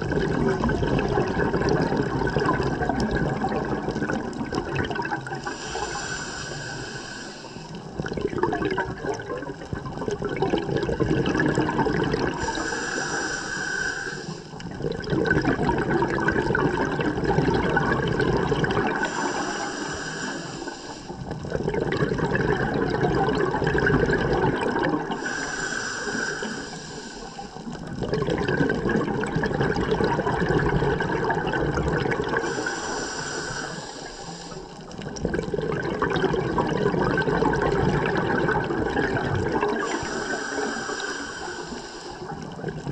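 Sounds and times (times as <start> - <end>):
exhaled bubbles rushing: 0.0 - 13.1, 14.6 - 20.4, 21.1 - 25.3, 27.5 - 33.9, 34.8 - 42.9
regulator hissing inhale: 5.3 - 8.0, 12.3 - 14.7, 18.9 - 21.5, 25.1 - 27.8, 32.4 - 35.0, 39.7 - 42.6.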